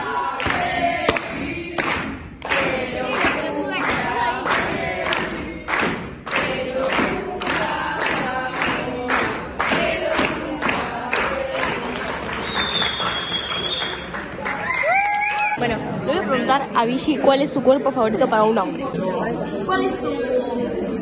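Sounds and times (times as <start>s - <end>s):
voices singing together: 0.0s - 13.3s.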